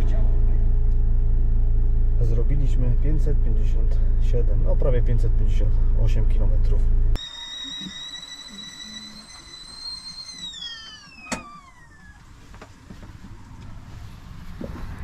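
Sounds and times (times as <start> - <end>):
kettle whistling: 7.2 - 12.6.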